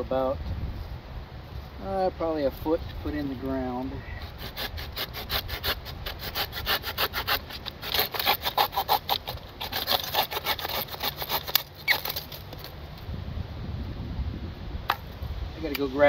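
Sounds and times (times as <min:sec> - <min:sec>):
hand saw cutting wood: 0:04.2 - 0:12.7.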